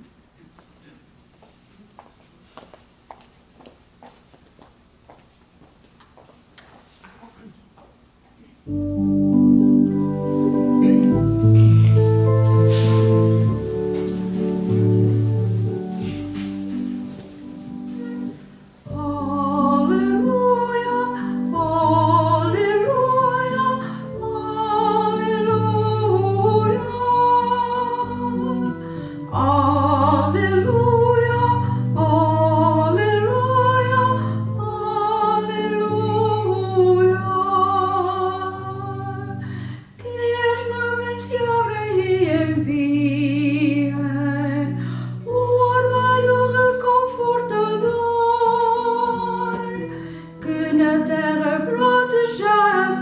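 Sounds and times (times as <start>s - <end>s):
sustained instrumental chords: 8.7s - 39.5s.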